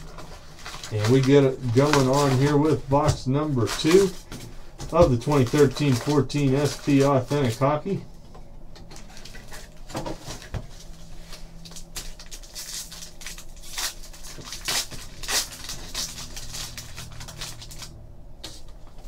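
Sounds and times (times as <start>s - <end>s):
foil wrapper crinkling and tearing: 0.0s - 8.0s, 8.9s - 18.0s
cards rustling: 0.0s - 19.0s.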